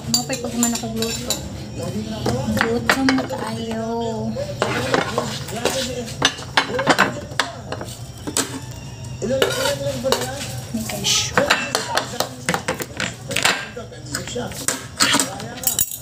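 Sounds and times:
plates and glass bowls clinking: 0.0s - 1.6s, 2.2s - 3.8s, 4.6s - 16.0s.

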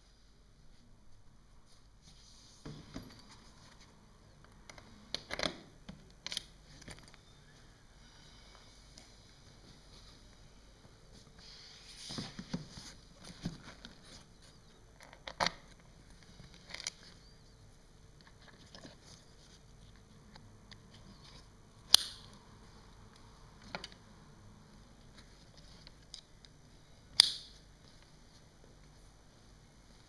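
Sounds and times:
sharp plastic clicks: 21.9s - 22.3s, 26.0s - 27.5s.

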